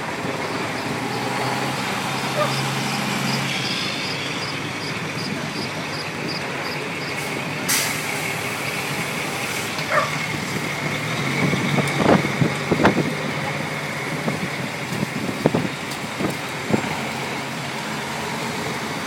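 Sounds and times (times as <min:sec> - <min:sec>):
diesel engines running: 0:00.0 - 0:19.0
air brake hiss: 0:07.7 - 0:08.4.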